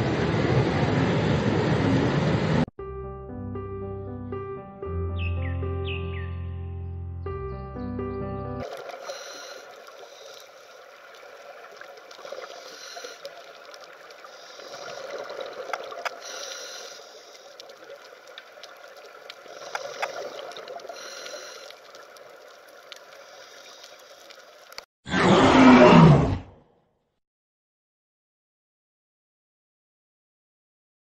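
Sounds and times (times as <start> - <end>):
underwater watery hiss: 8.6 - 24.8
clicks and crackles: 8.6 - 24.9
loud animal call: 25.1 - 26.6.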